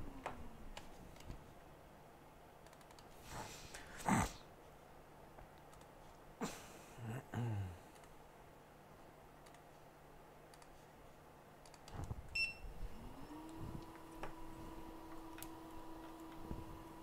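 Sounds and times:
small fan motor whine: 0:00.0 - 0:01.0, 0:12.0 - 0:17.0.

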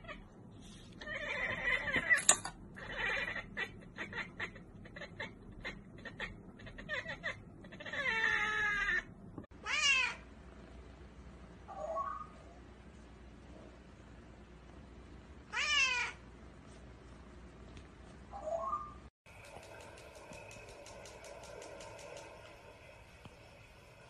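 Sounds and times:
cat chattering: 0:02.8 - 0:08.9
cat meowing: 0:02.8 - 0:10.2, 0:15.5 - 0:16.2.

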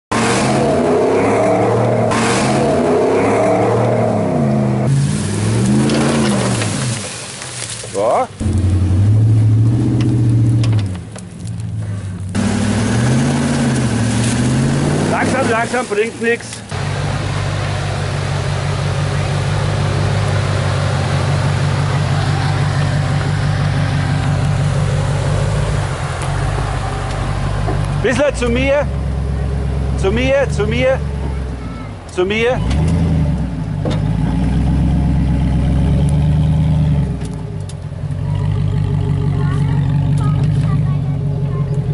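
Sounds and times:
pickup engine revving: 0:00.1 - 0:41.9.

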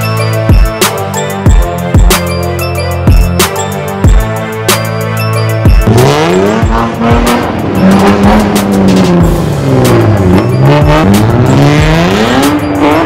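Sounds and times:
sports car engine revving: 0:04.8 - 0:13.0.

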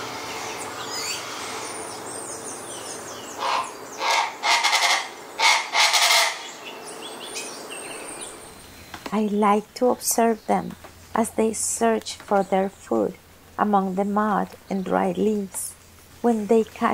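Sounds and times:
small birds twittering: 0:00.0 - 0:16.9
bird giving harsh rasping calls: 0:03.3 - 0:06.6.

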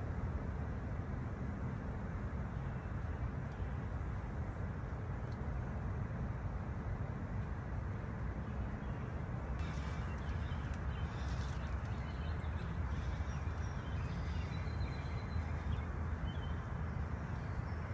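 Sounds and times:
outdoor background rumble: 0:00.0 - 0:17.9
faint high chirps: 0:09.6 - 0:17.9.

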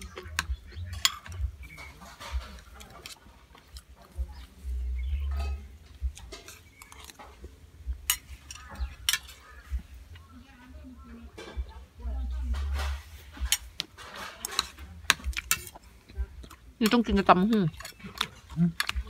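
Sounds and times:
cutlery scraping ceramic plate: 0:00.1 - 0:03.9, 0:05.2 - 0:07.5, 0:12.5 - 0:15.8, 0:16.8 - 0:19.0.

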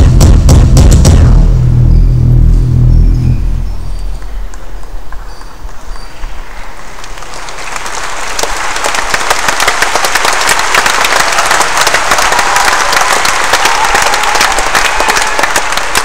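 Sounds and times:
electronic music: 0:00.0 - 0:04.8
audience applause: 0:04.5 - 0:16.0.

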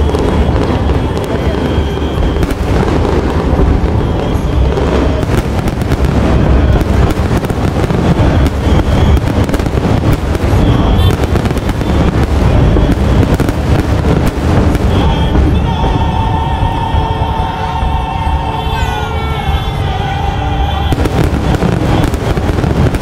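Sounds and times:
sharp cracks and crackles: 0:00.0 - 0:15.3
fireworks bursting: 0:00.0 - 0:23.0.

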